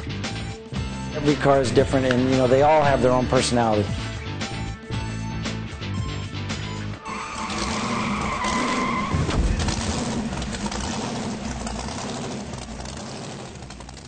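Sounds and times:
screeching whine: 7.0 - 13.9
rushing noise: 7.1 - 14.0
heavy thump: 9.1 - 10.8.

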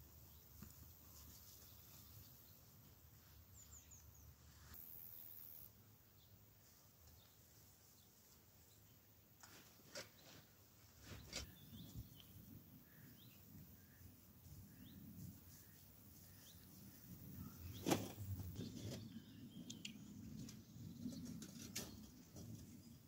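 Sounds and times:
rustling through tall grass: 0.1 - 5.4, 12.8 - 19.4
faint bird chirps: 11.0 - 22.1.

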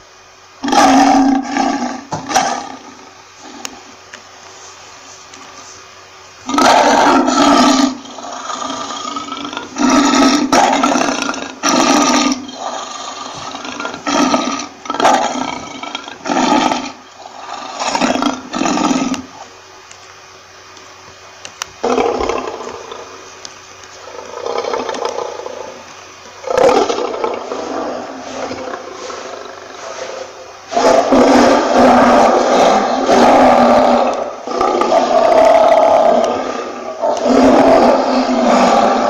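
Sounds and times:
lion roaring: 0.6 - 4.0, 6.4 - 19.4, 21.8 - 23.2, 24.0 - 25.8, 26.4 - 39.0
lion grunting calls: 26.4 - 39.0.

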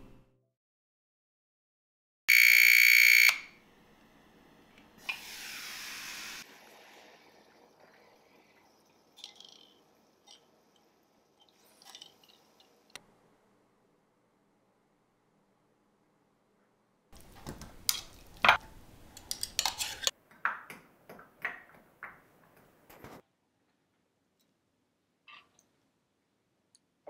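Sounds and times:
electronic alarm tone: 2.3 - 3.5.

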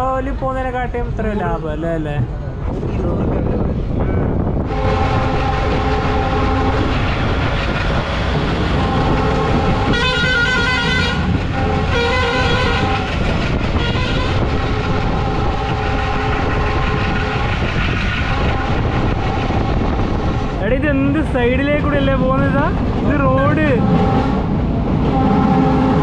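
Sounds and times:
train running noise: 0.0 - 26.0
train horn: 4.6 - 7.1, 8.6 - 20.5, 23.6 - 26.0.

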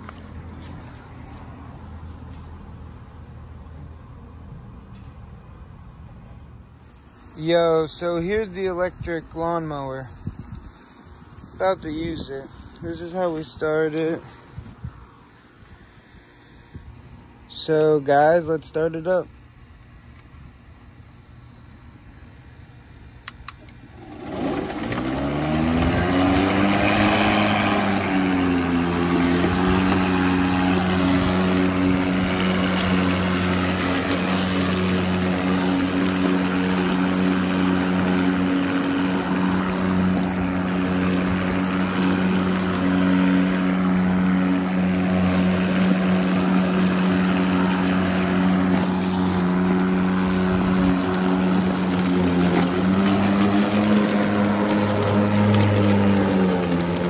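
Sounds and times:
electric mower motor whine: 6.7 - 57.0
mower blade whoosh: 23.9 - 57.0.

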